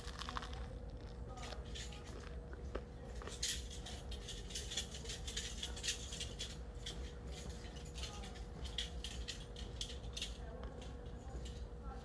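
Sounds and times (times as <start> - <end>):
keys jingling: 1.3 - 2.4, 3.2 - 11.7.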